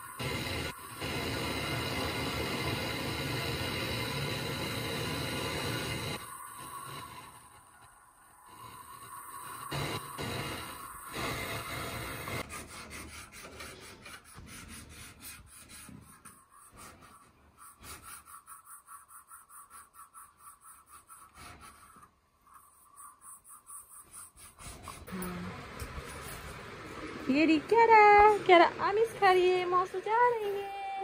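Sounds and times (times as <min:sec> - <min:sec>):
torch hissing: 0:00.0 - 0:12.4
fast regular scraping strokes: 0:12.4 - 0:25.3.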